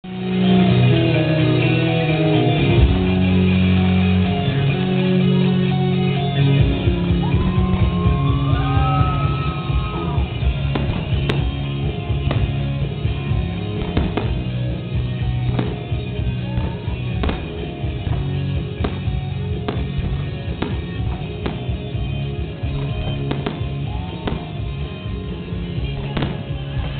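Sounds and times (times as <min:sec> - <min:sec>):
music with beat and guitar: 0:00.0 - 0:26.9
fireworks cracking: 0:06.4 - 0:26.9.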